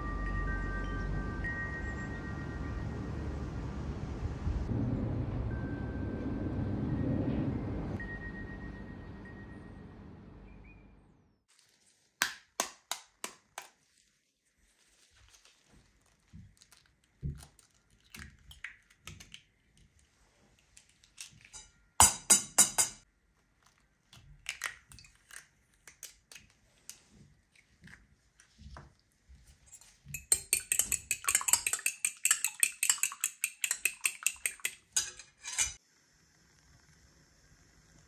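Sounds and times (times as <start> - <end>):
eggs beaten in bowl clinking: 21.2 - 23.0, 29.5 - 35.8
eggshells cracking: 23.6 - 27.0.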